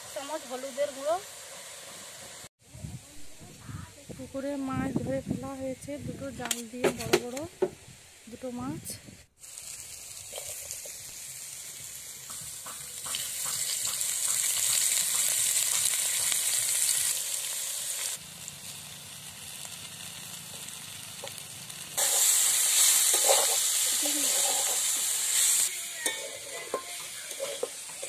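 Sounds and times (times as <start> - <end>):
vegetables sizzling in oil: 0.0 - 28.0
metal spatula taps and scrapes: 6.4 - 7.4, 12.2 - 16.4, 26.0 - 28.0.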